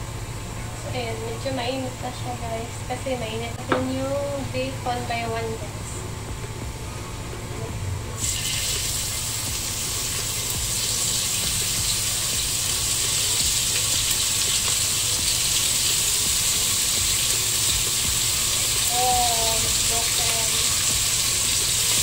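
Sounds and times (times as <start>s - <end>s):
meat and mushrooms sizzling in a pan: 8.2s - 22.0s.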